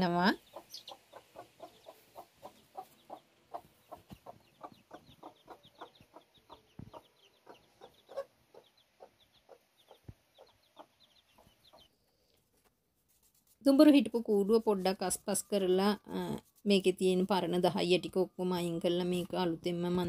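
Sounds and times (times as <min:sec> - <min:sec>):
chicks peeping: 0:00.3 - 0:12.4
hen clucking softly: 0:00.4 - 0:11.9.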